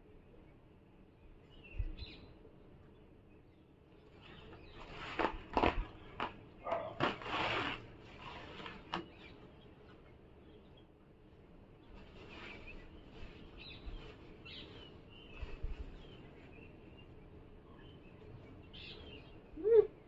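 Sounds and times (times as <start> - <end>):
paper towel crackling and rustling: 4.8 - 9.1.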